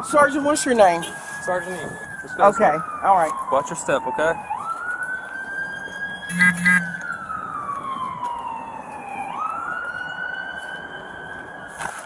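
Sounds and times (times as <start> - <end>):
emergency vehicle siren wailing: 0.0 - 12.0.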